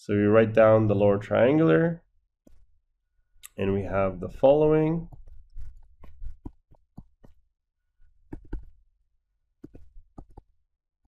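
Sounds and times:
stylus tapping on screen: 0:02.4 - 0:02.7, 0:05.0 - 0:07.5, 0:08.2 - 0:08.8, 0:09.6 - 0:10.5.

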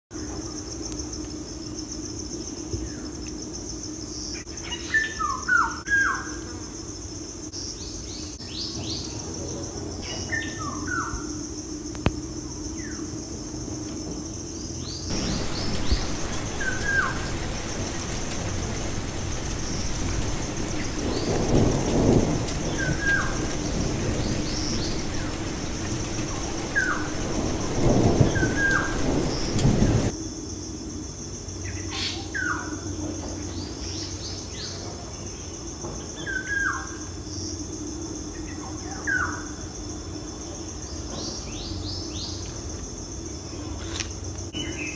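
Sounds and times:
steady hiss: 0:11.2 - 0:31.7
rain: 0:14.8 - 0:30.2
birds chirping: 0:15.1 - 0:30.1
low rumbles: 0:15.1 - 0:30.1.

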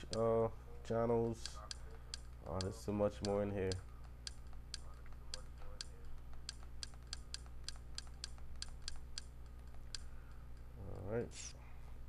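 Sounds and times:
steady low hum: 0:00.0 - 0:12.0
menu scrolling clicks: 0:01.4 - 0:10.1.

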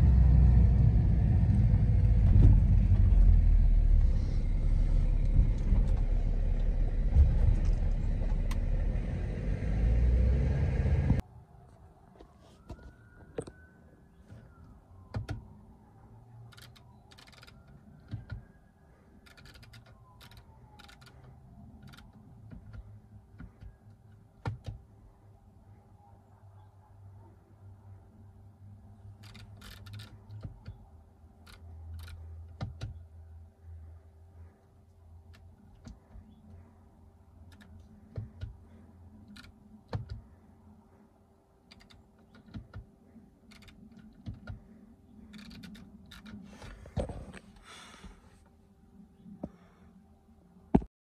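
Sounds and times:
low steady hum in car cabin: 0:00.0 - 0:11.2, 0:17.5 - 0:50.7
sharp clicks: 0:16.5 - 0:18.5, 0:29.2 - 0:33.0, 0:41.6 - 0:46.8.

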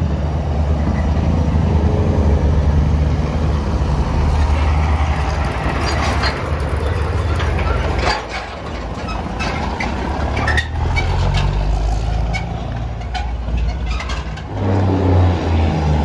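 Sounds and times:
diesel truck engine running: 0:00.0 - 0:16.0
knocks and rattles: 0:04.3 - 0:14.8.

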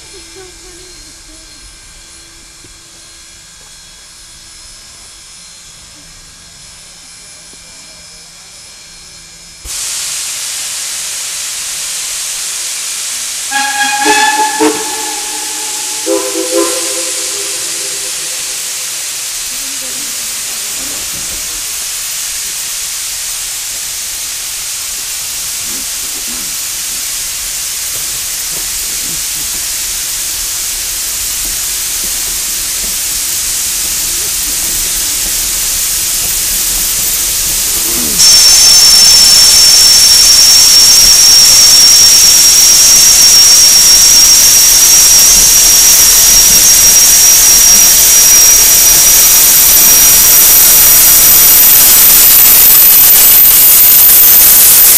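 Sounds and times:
steam hiss: 0:09.6 - 0:54.9
high steady squeal: 0:13.1 - 0:20.5, 0:30.6 - 0:54.9.

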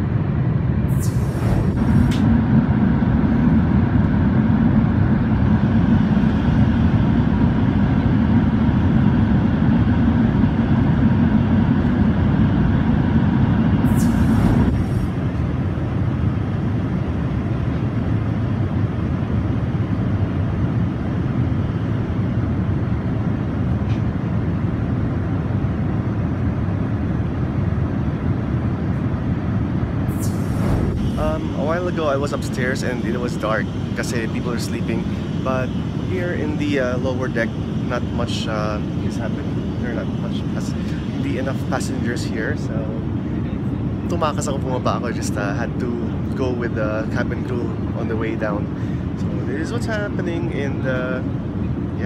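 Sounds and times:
airliner cabin noise: 0:00.0 - 0:52.0.

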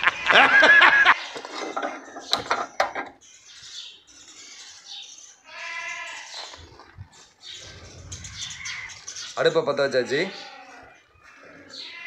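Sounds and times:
high-pitched animal calls: 0:10.0 - 0:12.0.

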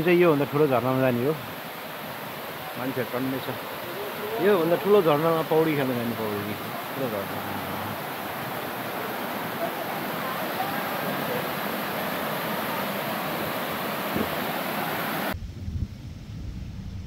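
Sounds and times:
low rumble: 0:15.4 - 0:17.0.

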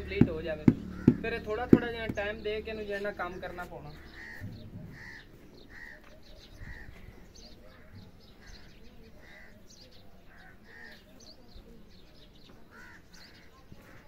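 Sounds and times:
small birds chirping: 0:00.0 - 0:14.0
crow cawing: 0:00.8 - 0:01.7, 0:04.0 - 0:06.1, 0:12.7 - 0:13.1.

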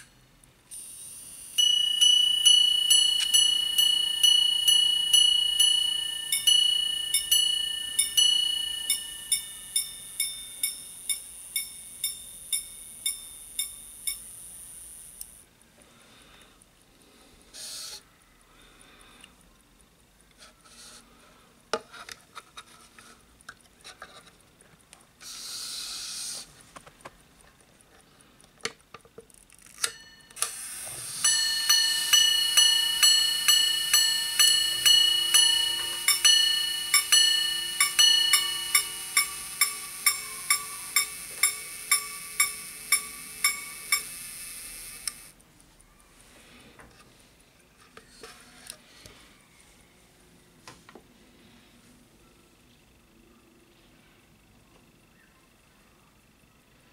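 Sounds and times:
watch gongs ringing strokes: 0:01.6 - 0:14.2, 0:31.2 - 0:44.1.

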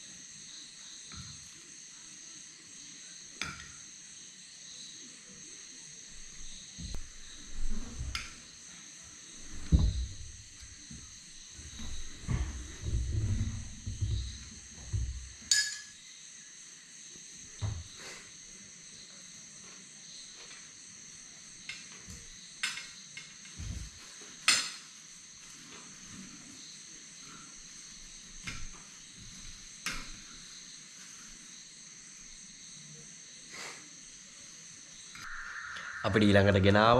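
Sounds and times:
cutlery clinking on plates: 0:15.5 - 0:16.0, 0:22.6 - 0:23.6, 0:24.4 - 0:25.0
high-pitched drone: 0:35.2 - 0:36.9.

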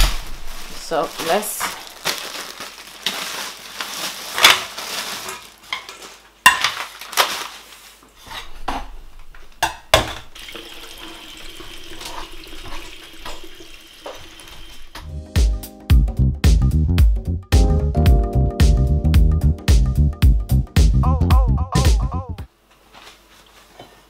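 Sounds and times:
plastic bag rustling: 0:00.0 - 0:08.6
tap water running into sink: 0:10.1 - 0:15.1.

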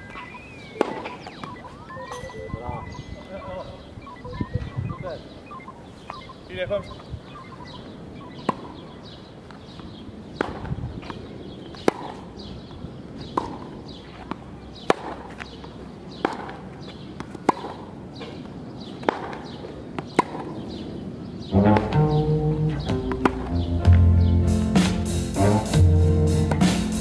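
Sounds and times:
tennis ball hit by rackets: 0:00.7 - 0:02.2, 0:08.4 - 0:08.8, 0:10.4 - 0:12.2, 0:13.2 - 0:15.4, 0:16.1 - 0:16.6, 0:17.2 - 0:18.4, 0:19.0 - 0:20.6, 0:22.9 - 0:24.1.

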